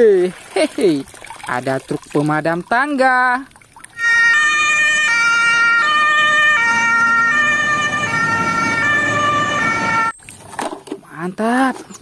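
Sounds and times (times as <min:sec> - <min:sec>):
fire engine two-tone siren: 0:04.0 - 0:10.2.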